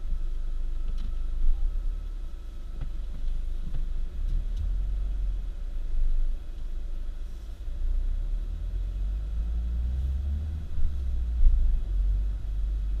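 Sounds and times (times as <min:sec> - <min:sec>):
moving car rumble: 0:00.0 - 0:13.0.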